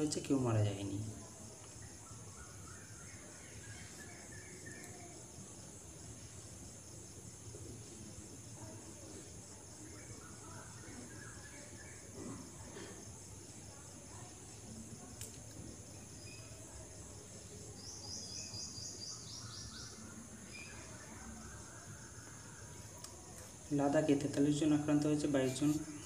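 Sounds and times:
insects chirping: 0.0s - 26.0s.

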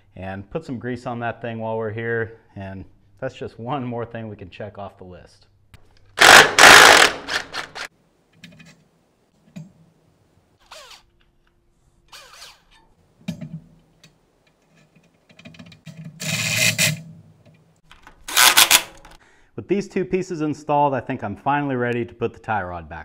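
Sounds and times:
impact driver hammering: 6.2s - 7.9s
short squeaks: 10.6s - 11.2s, 12.1s - 13.0s.

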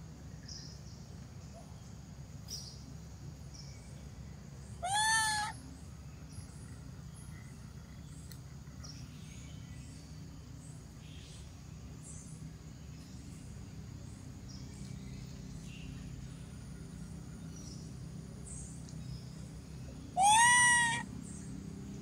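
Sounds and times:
monkey crying call: 4.8s - 5.6s, 20.1s - 21.1s
steady low hum: 5.5s - 20.2s
faint high chirps: 20.1s - 21.0s.

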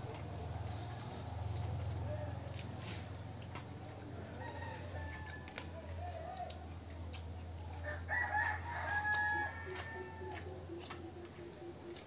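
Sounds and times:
rooster crowing: 4.3s - 5.7s, 7.8s - 10.6s.

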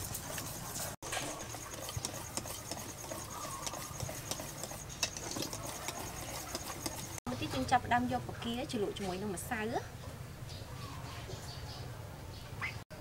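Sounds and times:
wire whisk beating batter in metal bowl: 0.0s - 7.7s.

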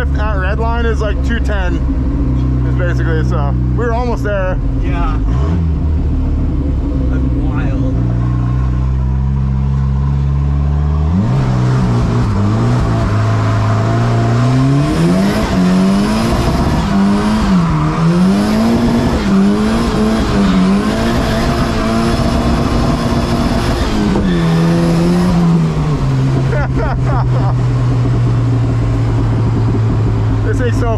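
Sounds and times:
car engine revving from inside: 7.1s - 26.0s.

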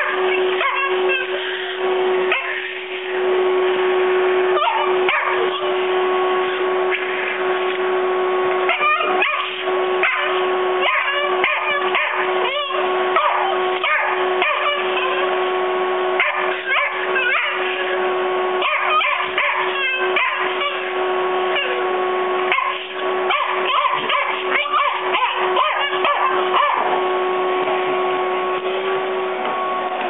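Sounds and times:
puppy yipping and whimpering: 0.0s - 1.0s, 4.6s - 5.4s, 8.7s - 15.2s, 16.2s - 17.8s, 18.6s - 20.8s, 22.5s - 26.8s
vacuum cleaner running: 0.0s - 30.0s.

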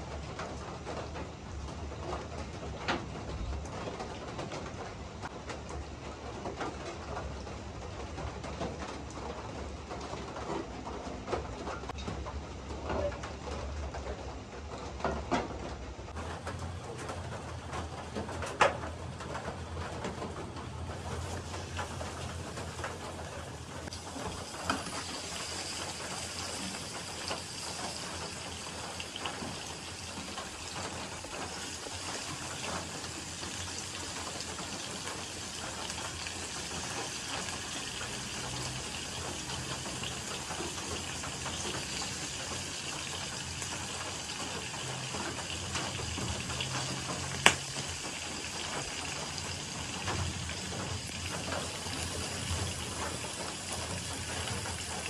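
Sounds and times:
pork sizzling in hot oil: 16.2s - 55.0s.

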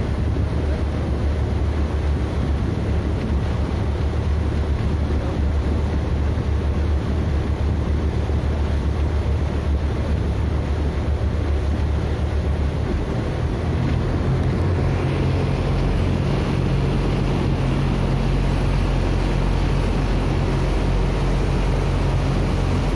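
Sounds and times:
motorboat engine drone: 0.0s - 22.9s
rush of boat wake: 0.0s - 22.9s
wind on microphone: 0.0s - 22.9s.

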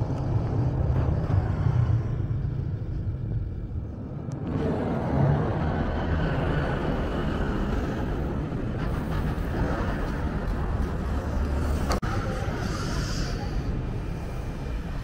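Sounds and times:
road traffic rumble: 0.0s - 15.0s.

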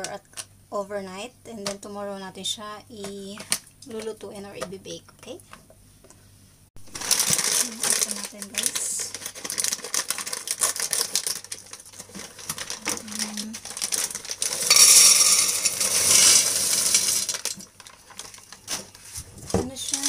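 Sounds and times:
plastic bag crinkling: 6.8s - 20.0s
dried beans pouring into metal pot: 13.4s - 17.6s.

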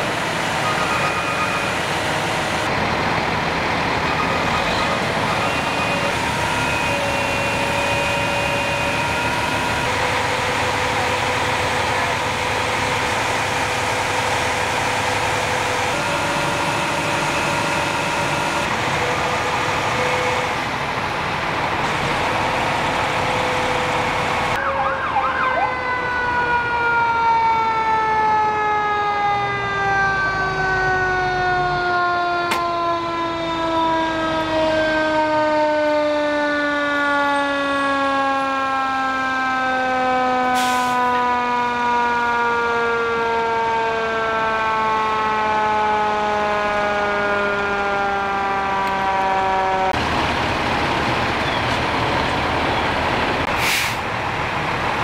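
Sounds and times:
fire truck engine noise: 0.0s - 55.0s
mechanical siren winding down: 12.6s - 20.7s, 23.1s - 50.0s
held horn tones: 15.9s - 19.2s.

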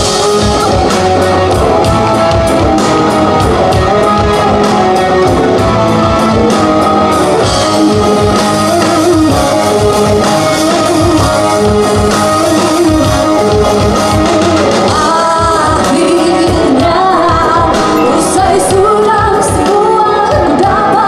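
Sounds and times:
electric guitar: 0.0s - 21.0s
live rock band: 0.0s - 21.0s.

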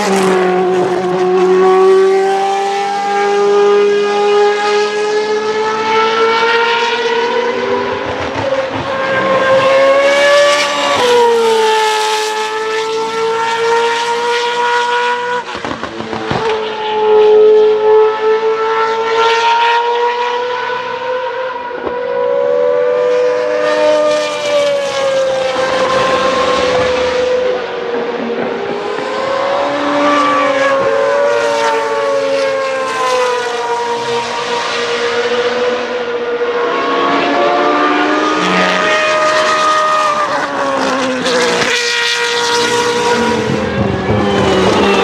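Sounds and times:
racing car engine at high revs: 0.0s - 45.0s.

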